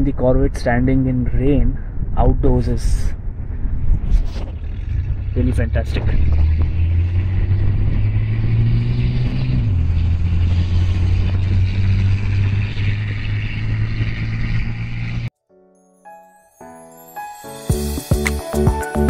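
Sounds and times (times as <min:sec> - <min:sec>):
car engine drone: 0:01.9 - 0:15.3.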